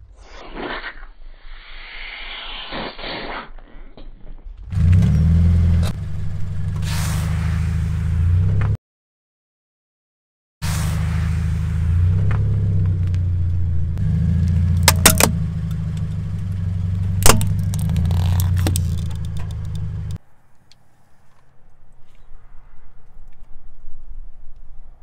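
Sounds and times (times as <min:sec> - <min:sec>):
car engine idling: 0:04.8 - 0:06.9, 0:11.5 - 0:20.2
plastic crunching under tyre: 0:14.5 - 0:20.2.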